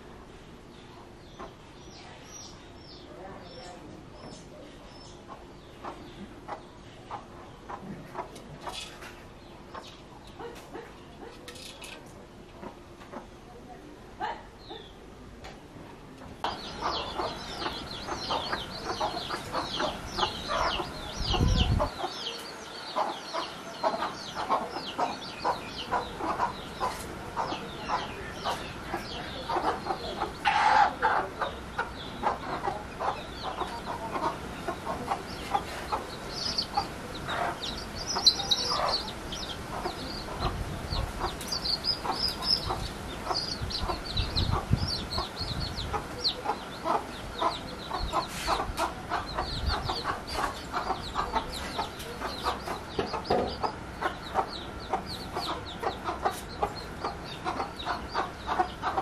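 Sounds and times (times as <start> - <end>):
chicks peeping: 0.0 - 11.5, 16.1 - 59.0
hen clucking softly: 16.4 - 59.0.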